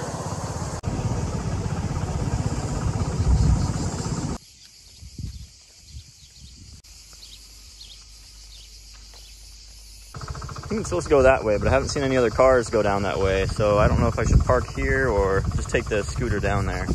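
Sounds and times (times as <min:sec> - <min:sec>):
scooter engine running: 0:00.0 - 0:04.4, 0:10.2 - 0:14.5
high buzz of insects: 0:00.0 - 0:16.9
wind buffeting microphone: 0:00.8 - 0:04.4, 0:05.0 - 0:06.8, 0:10.7 - 0:16.9.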